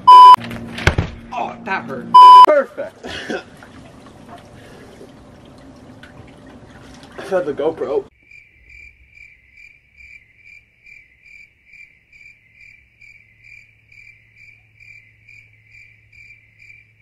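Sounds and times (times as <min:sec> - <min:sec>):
cricket chirping: 0:08.1 - 0:17.0.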